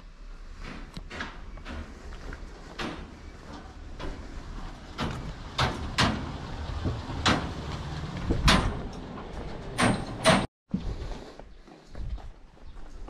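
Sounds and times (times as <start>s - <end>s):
footsteps on stone paving: 11.1s - 13.0s.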